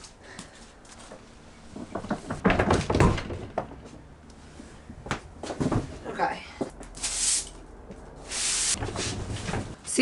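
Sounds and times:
knocks and heavy thuds: 1.8 - 4.0.

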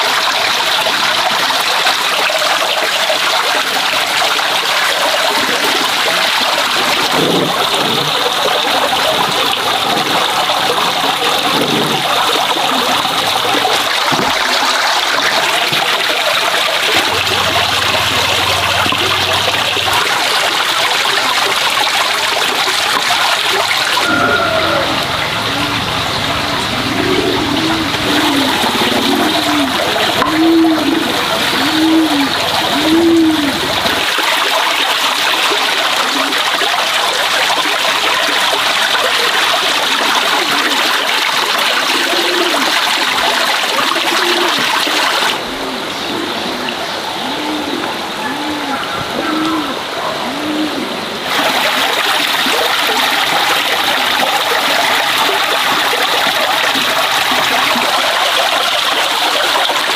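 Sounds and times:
water splashing into basin: 0.0 - 45.5, 51.2 - 59.9
short low notes: 23.9 - 29.9.

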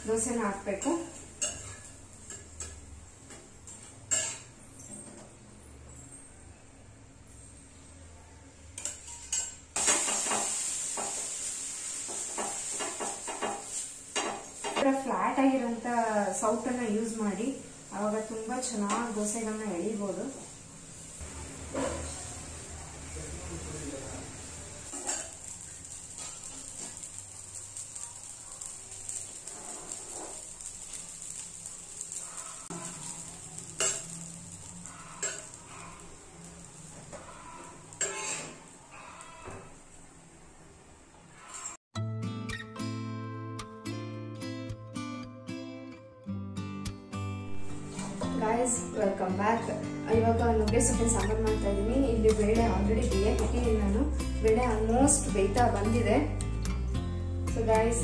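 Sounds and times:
water sizzling on hot pan: 0.0 - 4.4, 9.3 - 39.9, 50.7 - 56.4
spatula scraping a pan: 1.4 - 2.8, 29.1 - 31.4, 32.0 - 36.2, 36.9 - 39.7.

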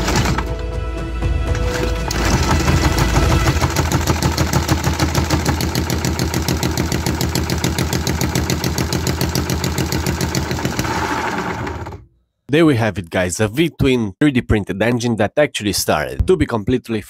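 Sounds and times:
engine running with fast beats: 0.0 - 0.6, 1.5 - 12.1
electric drill turning engine: 1.5 - 12.0.

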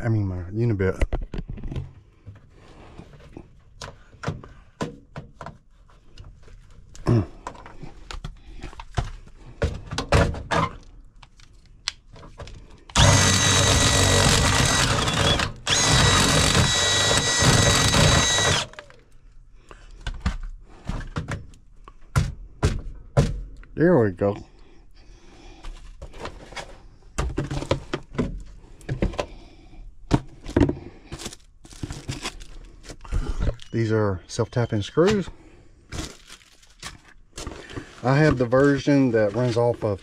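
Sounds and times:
power drill cutting sheet metal: 13.0 - 18.9.

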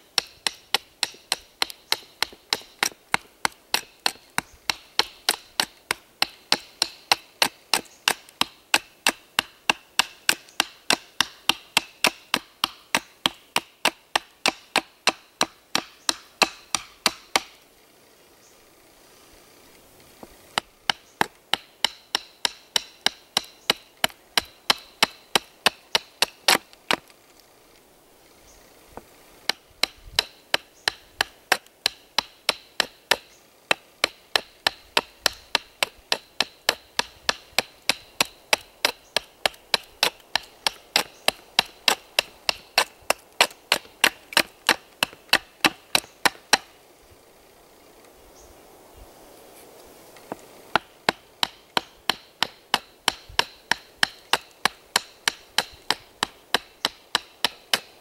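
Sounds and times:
knife chopping wooden stick: 0.2 - 17.5, 20.6 - 27.1, 29.5 - 46.7, 50.8 - 57.9.

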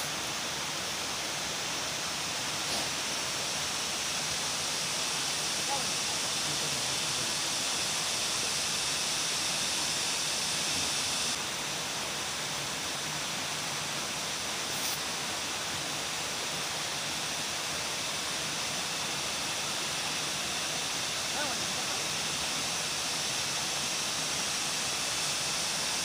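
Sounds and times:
steady outdoor hiss: 0.0 - 26.0.

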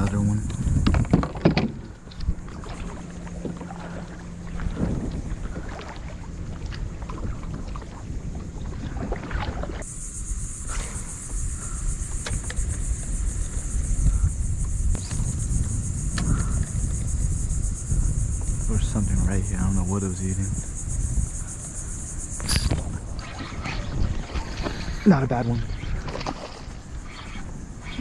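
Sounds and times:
high insect drone: 0.0 - 28.0
wind buffeting microphone: 0.0 - 28.0
paddle splashing water: 0.8 - 9.9, 22.4 - 28.0.

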